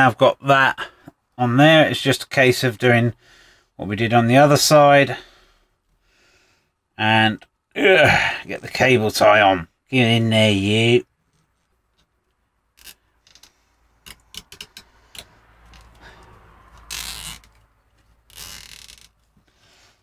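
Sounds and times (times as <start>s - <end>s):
cable tie zipping: 12.7s - 19.4s.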